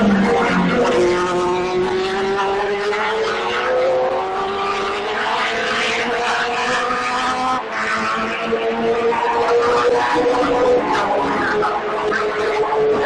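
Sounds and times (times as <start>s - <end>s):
racing car engine at high revs: 0.0s - 13.0s.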